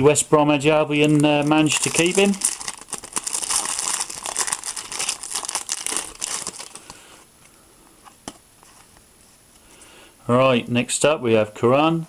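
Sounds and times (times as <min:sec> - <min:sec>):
foil wrapper crinkling: 0:00.9 - 0:07.0.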